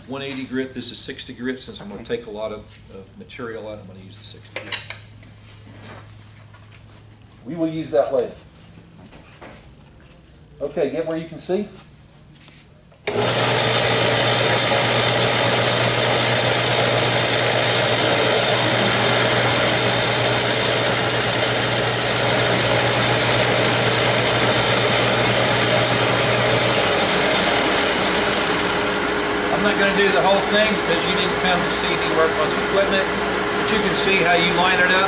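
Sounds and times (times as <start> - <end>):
belt sander sanding wood: 13.1 - 35.0.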